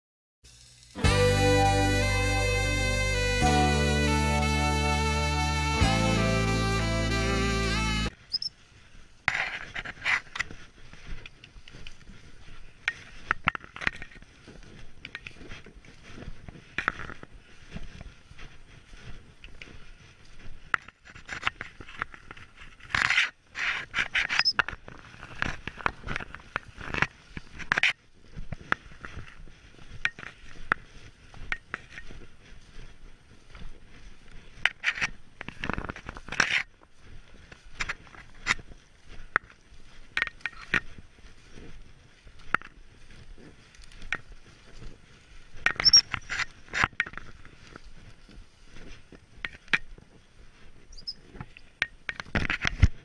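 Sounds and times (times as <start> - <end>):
footsteps through grass: 0.5 - 53.0
plants brushing against clothing: 9.0 - 53.0.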